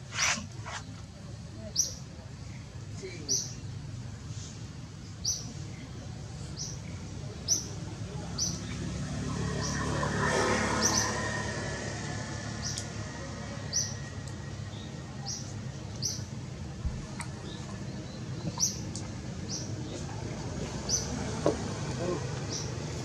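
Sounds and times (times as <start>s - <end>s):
bird chirping: 17.4s - 20.1s.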